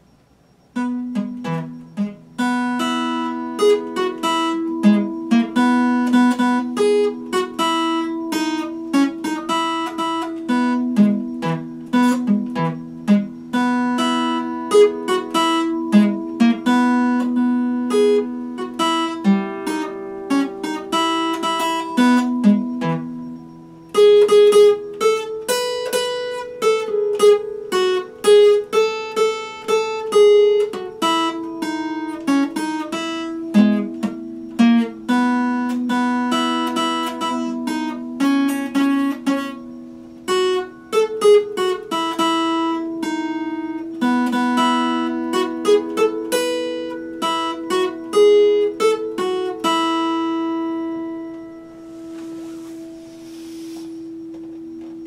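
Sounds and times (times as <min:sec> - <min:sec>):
acoustic guitar playing: 0:00.0 - 0:55.0.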